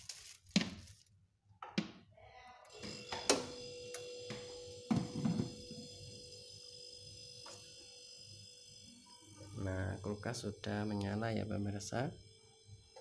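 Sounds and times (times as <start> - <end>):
refrigerator humming with whine: 2.8 - 13.0.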